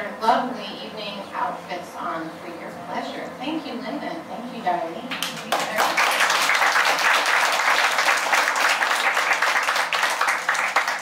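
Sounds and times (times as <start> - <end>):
crowd applause: 5.5 - 11.0.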